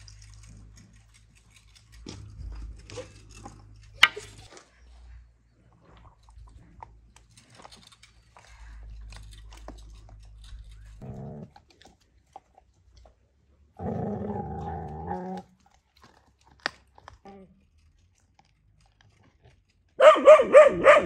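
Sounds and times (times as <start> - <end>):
dog growling: 11.0 - 11.8, 13.8 - 15.6.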